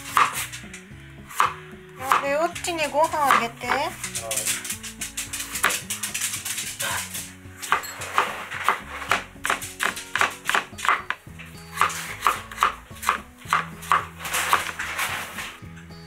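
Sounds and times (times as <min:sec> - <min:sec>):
background music: 0:00.0 - 0:16.0
knife slicing on wooden board: 0:06.9 - 0:15.4.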